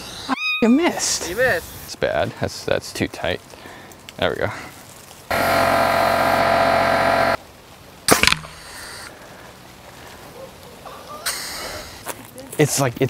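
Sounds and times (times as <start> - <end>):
air compressor motor humming: 5.3 - 7.4.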